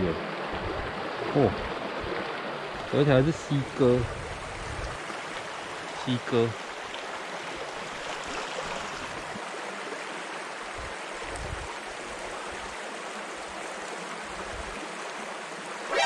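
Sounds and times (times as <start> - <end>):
stream flowing over stones: 0.0 - 16.0.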